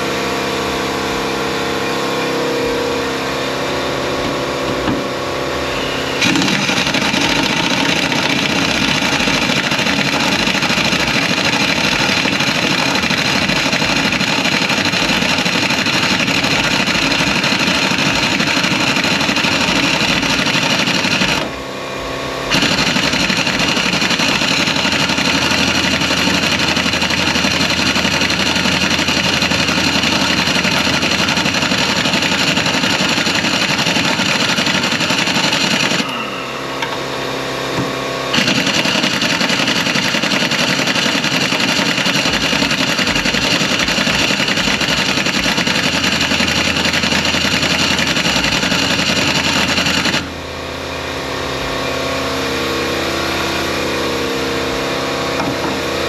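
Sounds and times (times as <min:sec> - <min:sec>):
angle grinder cutting nut: 0:06.2 - 0:21.6.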